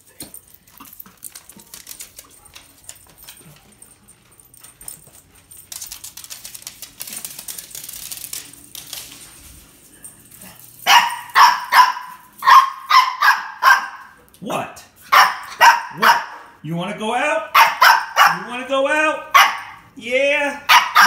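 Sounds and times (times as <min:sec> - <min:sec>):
scuffling footsteps: 0:00.3 - 0:12.8
dog barking: 0:10.8 - 0:14.2, 0:15.1 - 0:16.6, 0:17.5 - 0:18.5, 0:19.3 - 0:19.8, 0:20.7 - 0:21.0.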